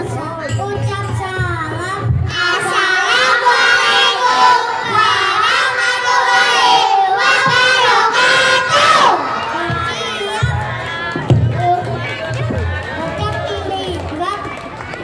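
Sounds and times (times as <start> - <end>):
children singing through pa system: 1.8 - 10.5.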